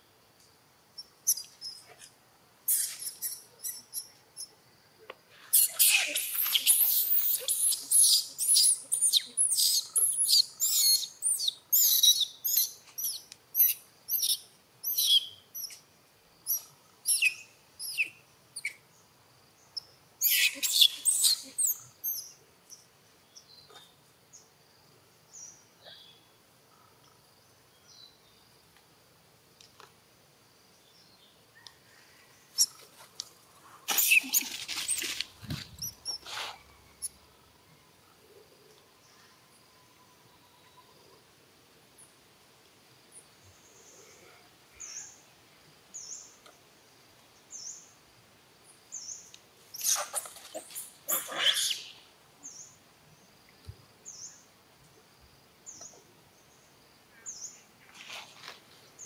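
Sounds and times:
young monkey crying: 5.5 - 11.0, 20.2 - 21.8, 51.1 - 51.9.

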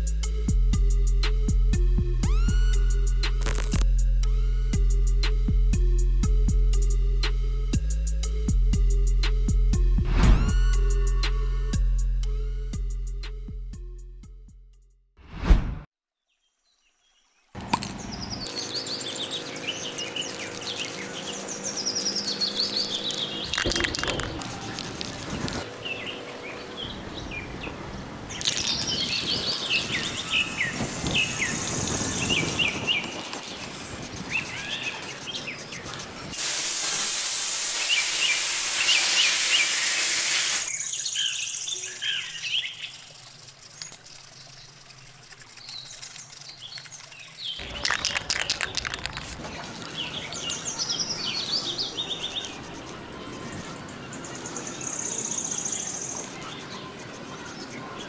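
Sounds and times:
spray paint can hissing: 2.6 - 3.8, 17.8 - 25.6, 28.4 - 58.0
birds chirping and singing: 17.6 - 36.3, 40.7 - 58.0.

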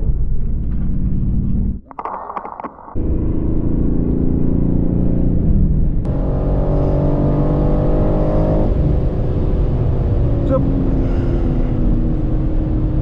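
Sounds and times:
car engine accelerating: 3.0 - 13.0.

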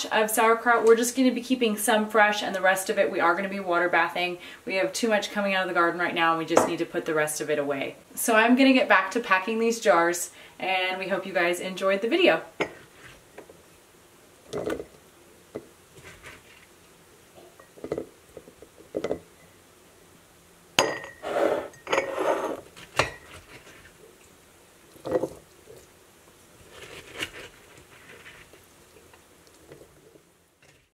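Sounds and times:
glass jars clinking on countertop: 20.8 - 22.2.

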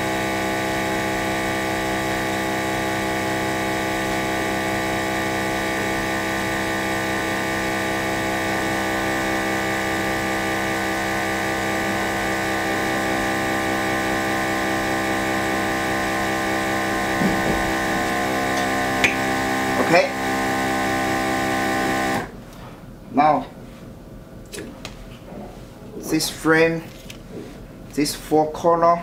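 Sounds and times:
vacuum pump humming: 0.0 - 23.0.

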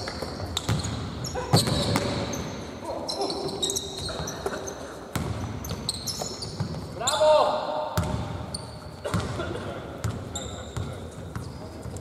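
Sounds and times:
sneakers squeaking on floor: 0.0 - 7.3, 8.0 - 12.0
basketball bouncing: 0.1 - 2.4, 5.1 - 5.6, 8.0 - 8.4, 9.0 - 9.4.

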